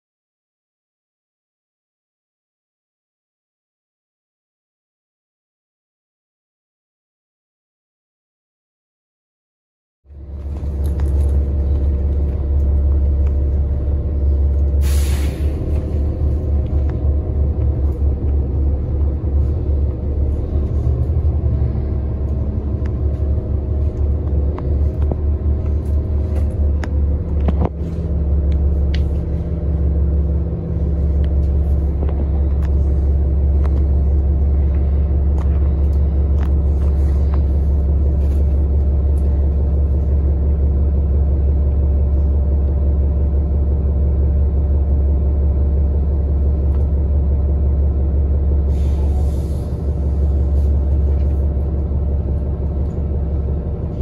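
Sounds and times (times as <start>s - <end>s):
bus drivetrain rumble: 10.1s - 54.0s
short hiss: 14.8s - 15.6s.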